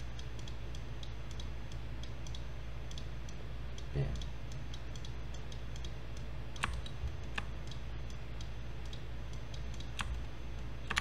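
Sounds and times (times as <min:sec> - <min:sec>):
steady low hum: 0:00.0 - 0:11.0
computer mouse clicks: 0:00.2 - 0:10.2.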